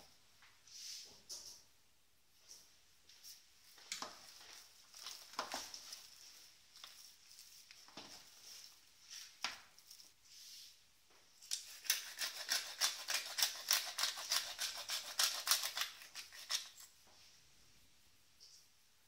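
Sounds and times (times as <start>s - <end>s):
pepper mill grinding: 11.5s - 16.9s.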